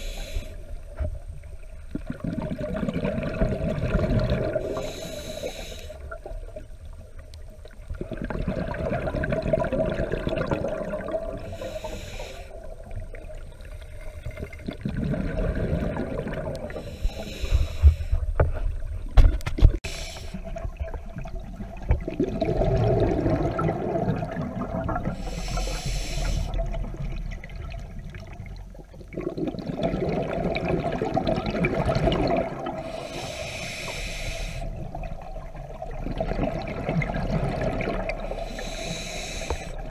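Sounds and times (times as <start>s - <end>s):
regulator hiss on inhale: 0.0s - 1.1s, 4.6s - 6.2s, 11.4s - 12.8s, 16.7s - 18.7s, 19.8s - 20.5s, 25.2s - 26.7s, 32.8s - 34.9s, 38.2s - 39.9s
rumbling exhaled bubbles: 1.4s - 4.8s, 6.1s - 11.6s, 12.6s - 16.8s, 20.4s - 25.8s, 26.4s - 33.4s, 34.7s - 38.9s.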